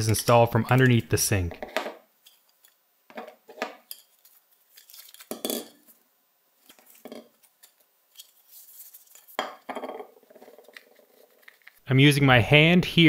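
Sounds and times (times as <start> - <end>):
plastic parts clicking and clattering: 10.3 - 11.8.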